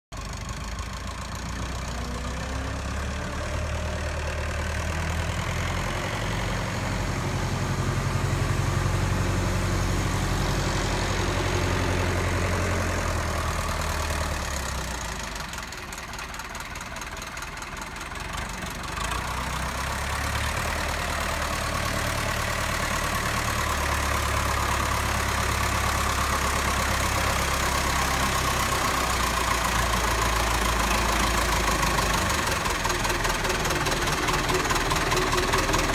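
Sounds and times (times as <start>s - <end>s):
diesel tractor engine running: 0.1s - 35.9s.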